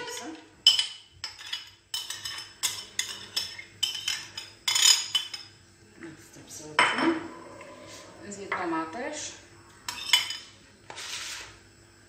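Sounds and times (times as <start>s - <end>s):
utensil scraping and clattering in bowl: 0.1s - 5.4s.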